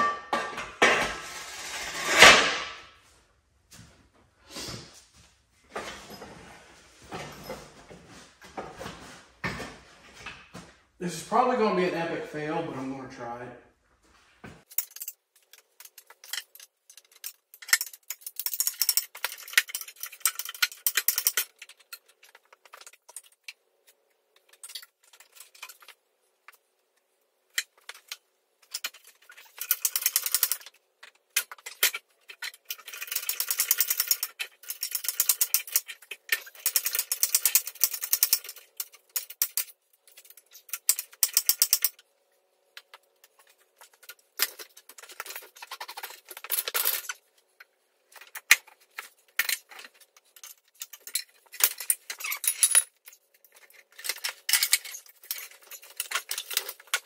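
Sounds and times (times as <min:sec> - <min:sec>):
jack metallic clicking and rattling: 0:27.9 - 0:30.7, 0:31.4 - 0:42.0.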